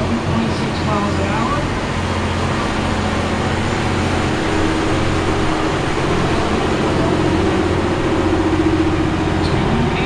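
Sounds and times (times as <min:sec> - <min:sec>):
tractor diesel engine driving by: 0:00.0 - 0:10.0.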